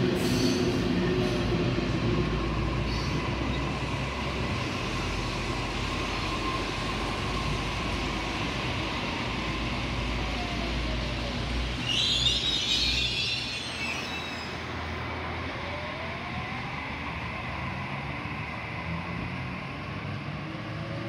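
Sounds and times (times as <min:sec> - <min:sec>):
electric train rumbling past: 0:00.0 - 0:21.0
wheels squealing on rails: 0:00.1 - 0:01.6, 0:02.3 - 0:14.9.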